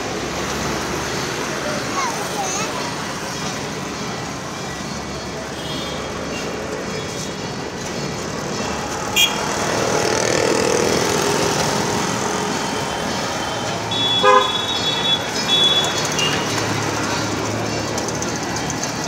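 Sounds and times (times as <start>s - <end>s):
road traffic noise: 0.0s - 19.0s
vehicle horns honking: 5.5s - 6.5s, 9.1s - 9.6s, 12.7s - 16.6s.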